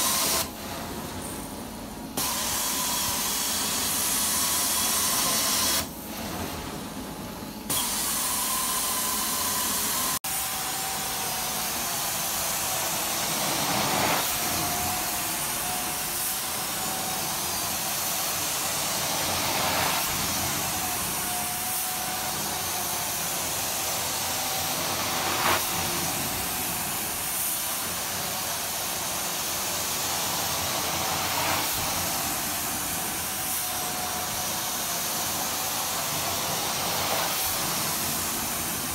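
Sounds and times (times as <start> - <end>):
carpet extraction wand hissing: 2.2 - 5.9, 7.7 - 38.9.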